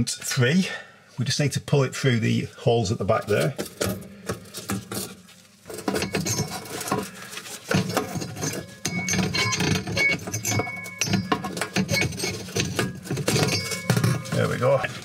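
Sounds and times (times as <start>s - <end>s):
metal clinking and scraping: 3.3s - 15.0s.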